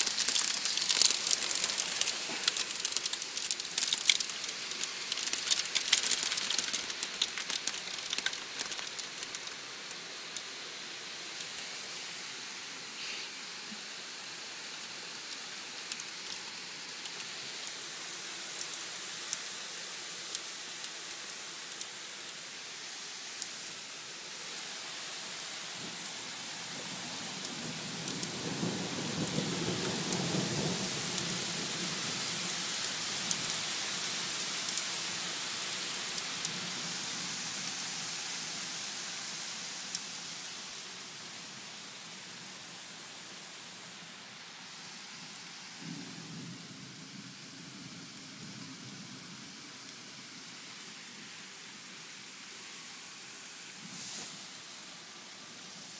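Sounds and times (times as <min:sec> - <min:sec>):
hailstones clicking on glass: 0:00.0 - 0:10.5, 0:15.1 - 0:22.5, 0:25.0 - 0:37.0
heavy rain hissing: 0:00.0 - 0:55.9.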